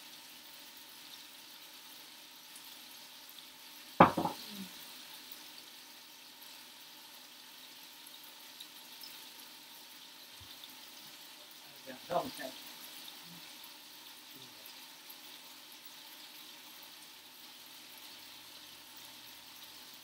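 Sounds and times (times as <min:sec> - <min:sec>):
chicken sizzling in skillet: 0:00.0 - 0:20.0
sharp knock: 0:04.0 - 0:04.4.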